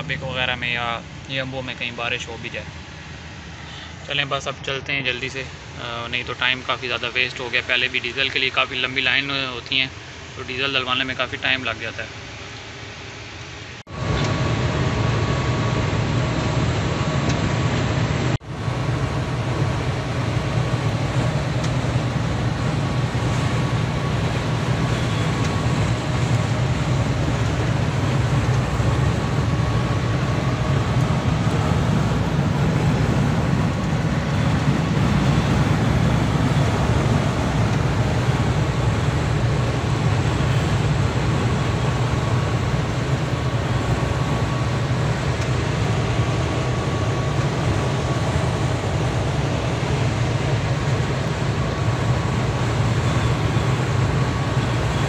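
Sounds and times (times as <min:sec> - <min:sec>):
diesel truck cruising inside cab: 0:13.8 - 0:55.0.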